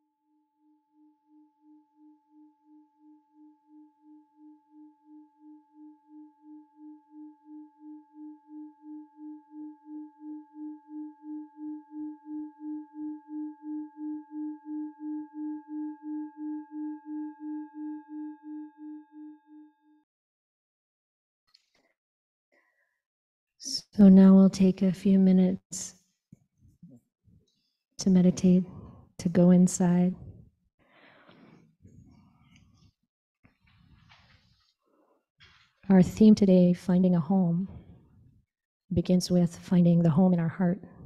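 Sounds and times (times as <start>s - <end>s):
singing bowl ringing: 0.3s - 20.0s.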